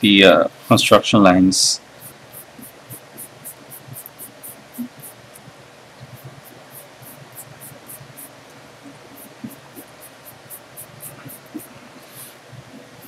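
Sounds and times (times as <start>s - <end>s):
eraser rubbing on paper: 2.0s - 5.4s, 6.0s - 13.0s.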